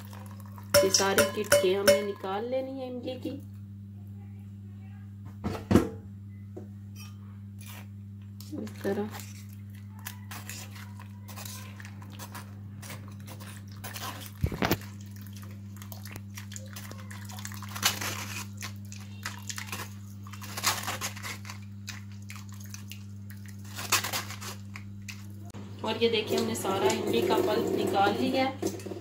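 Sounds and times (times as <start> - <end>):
metal clinks on a strainer: 0.8 - 2.2.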